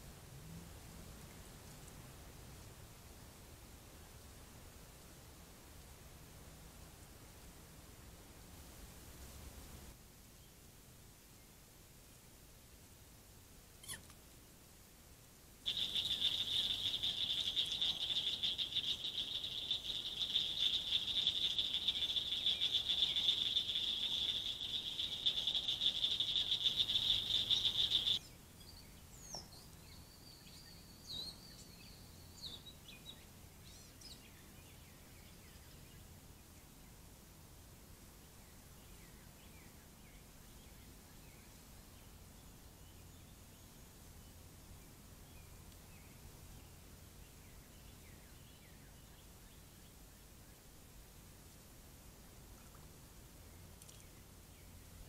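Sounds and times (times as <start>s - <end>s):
faint bird chirps: 13.8s - 14.2s, 15.7s - 36.1s.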